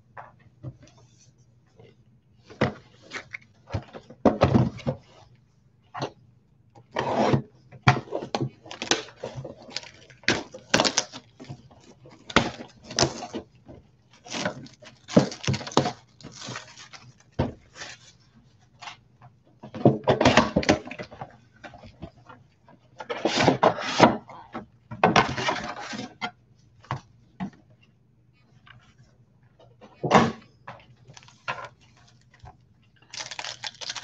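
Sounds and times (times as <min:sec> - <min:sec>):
plastic wrap crinkling and tearing: 0:08.6 - 0:13.3, 0:14.1 - 0:18.1, 0:31.0 - 0:34.0
cardboard rustling: 0:14.1 - 0:18.3, 0:31.0 - 0:32.5, 0:33.1 - 0:34.0.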